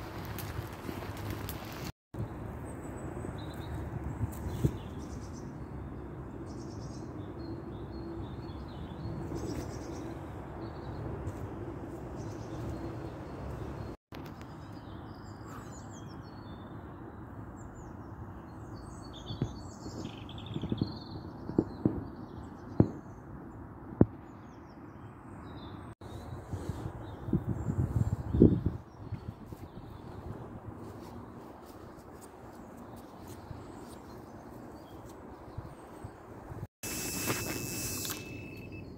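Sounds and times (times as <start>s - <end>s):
outdoor background noise: 0.0s - 38.9s
small birds chirping: 12.1s - 23.3s.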